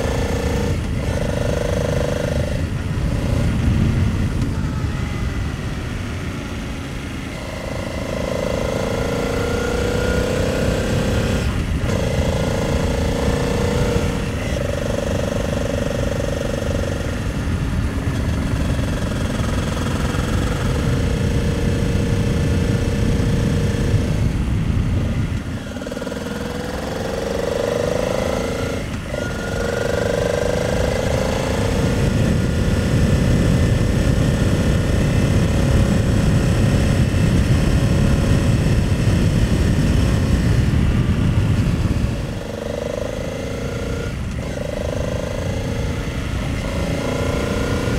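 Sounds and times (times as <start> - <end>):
motorcycle engine running: 0.0 - 47.9
wind on microphone: 0.0 - 47.9.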